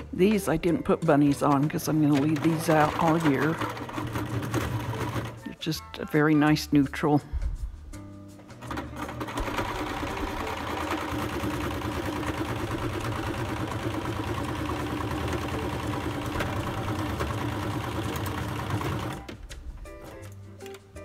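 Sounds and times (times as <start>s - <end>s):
sewing machine running: 2.0s - 5.6s, 8.6s - 19.3s.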